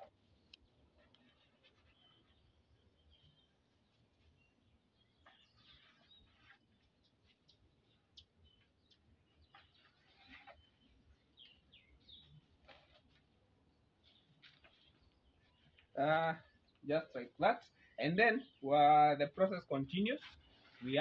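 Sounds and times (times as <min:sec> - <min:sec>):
faint bird chirps: 0:00.0 - 0:18.7.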